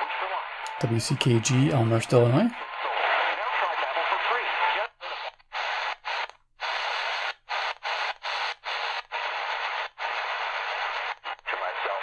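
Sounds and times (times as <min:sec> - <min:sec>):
radio static hissing: 0:00.0 - 0:12.0.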